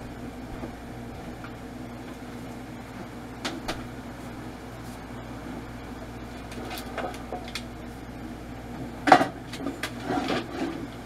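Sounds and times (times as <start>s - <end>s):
kitchen appliance humming: 0.0s - 11.0s.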